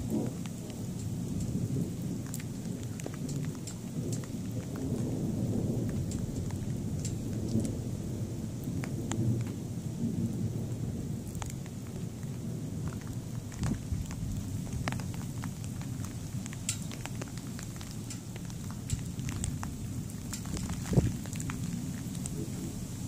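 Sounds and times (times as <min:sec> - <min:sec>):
rain ticks: 0:00.0 - 0:23.0
thunder rumbling: 0:00.0 - 0:23.0.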